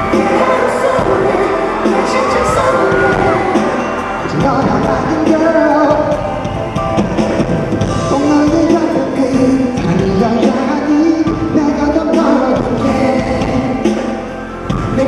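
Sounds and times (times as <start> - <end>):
loud backing music: 0.0 - 15.0
man singing into microphone: 4.2 - 6.3, 8.0 - 14.0.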